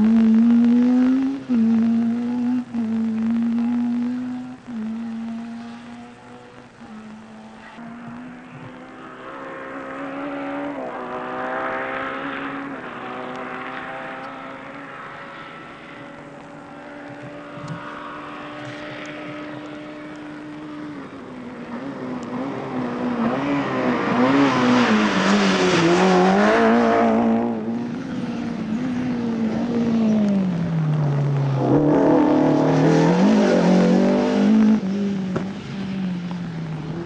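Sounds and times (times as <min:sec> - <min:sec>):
rally car engine revving: 0:00.0 - 0:37.0.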